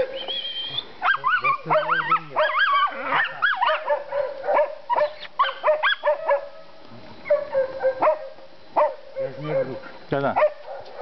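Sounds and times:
dog yelping barks: 1.0 - 6.6, 7.2 - 9.7, 10.4 - 11.0.

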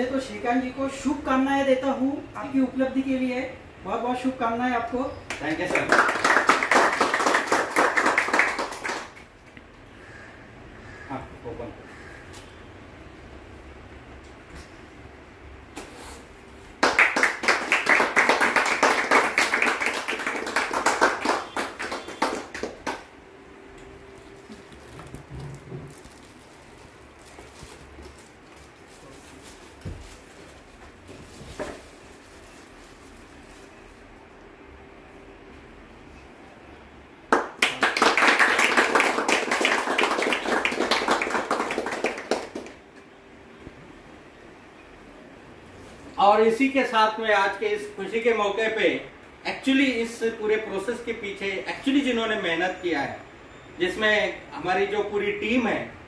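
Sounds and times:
people clapping: 5.3 - 9.6, 16.8 - 23.2, 37.3 - 43.0.

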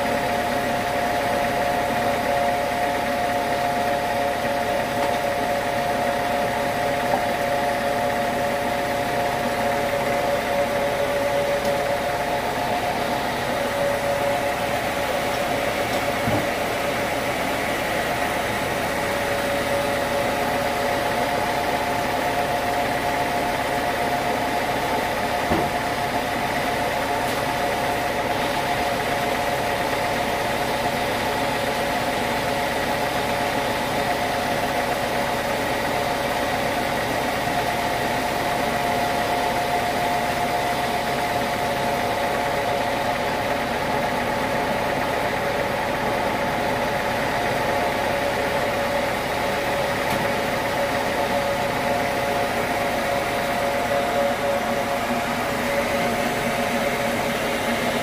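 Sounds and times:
sawmill machine humming: 0.0 - 58.0
knock: 25.5 - 25.8.

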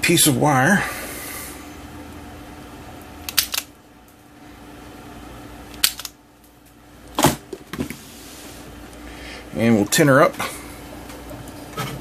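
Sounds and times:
wire stripper clicking: 3.3 - 3.7, 5.7 - 6.2.

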